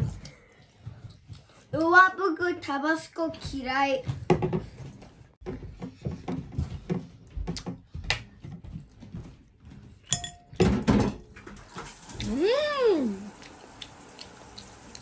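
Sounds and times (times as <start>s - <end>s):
dishes and cutlery clinking: 10.0s - 11.7s.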